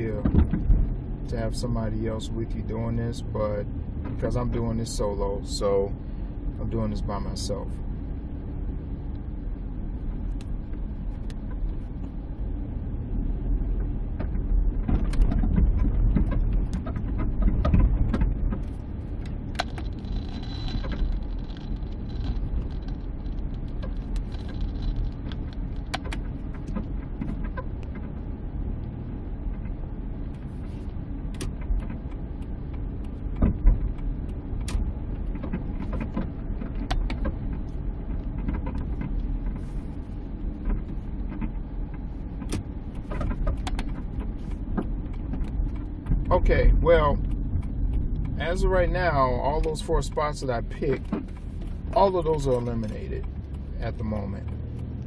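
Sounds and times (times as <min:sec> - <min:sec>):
road and suspension rumble: 0:00.0 - 0:55.0
sharp clicks and knocks: 0:00.1 - 0:00.9, 0:13.7 - 0:55.0.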